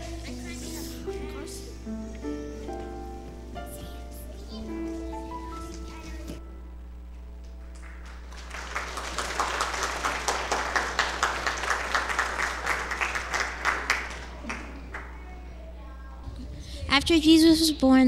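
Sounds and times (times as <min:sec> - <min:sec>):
audience clapping: 0:07.4 - 0:15.6.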